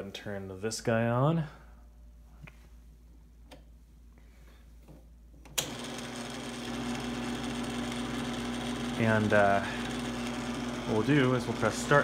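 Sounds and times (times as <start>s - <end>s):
teletype motor humming: 5.6s - 12.0s.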